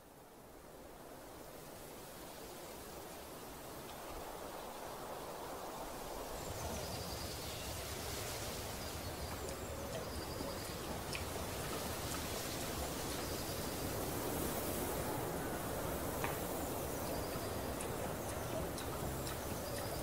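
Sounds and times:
steady outdoor hiss: 0.0 - 20.0
bird chirps and trills: 16.9 - 20.0.

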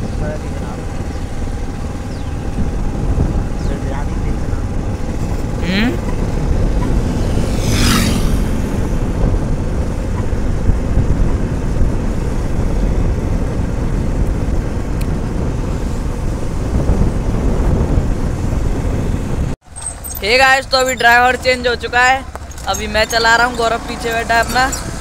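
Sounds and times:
wind rush on microphone: 0.0 - 19.6
motorcycle engine running: 0.0 - 25.0
brief whooshing rush: 6.0 - 9.9.

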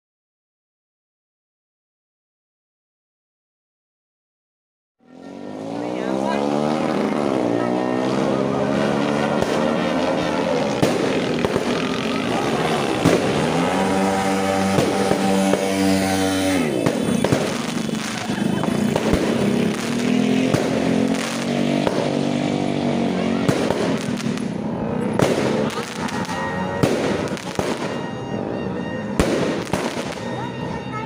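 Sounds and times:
vehicle engine revving: 5.0 - 30.8
fireworks pops: 16.8 - 22.2.

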